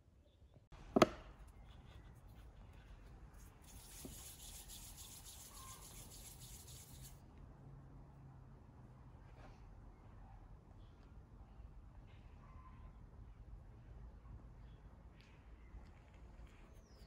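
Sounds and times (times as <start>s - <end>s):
hands rolling dough: 0.9s - 7.1s.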